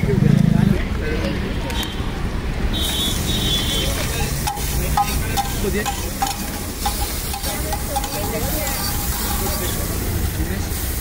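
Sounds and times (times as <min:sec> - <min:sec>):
metal spatula scraping griddle: 0:04.4 - 0:10.0
butter sizzling on a griddle: 0:04.4 - 0:11.0.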